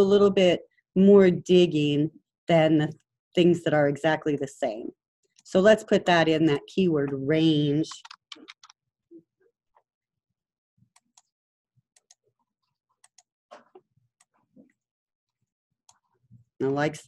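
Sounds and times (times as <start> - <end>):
computer keyboard typing: 7.9 - 8.8.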